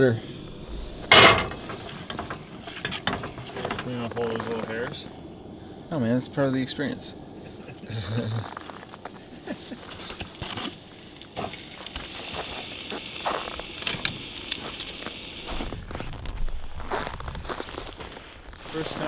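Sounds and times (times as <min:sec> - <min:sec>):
meat sizzling in a frying pan: 0:09.4 - 0:15.8.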